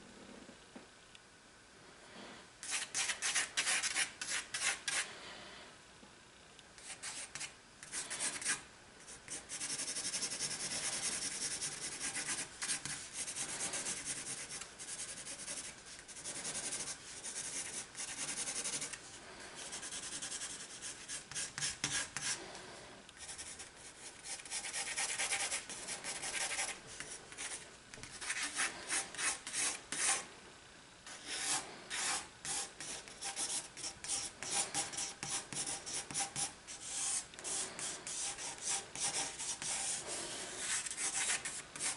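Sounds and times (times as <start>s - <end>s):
pencil scribbling on paper: 6.8s - 19.0s, 19.6s - 22.4s, 23.2s - 30.2s, 31.1s - 41.9s.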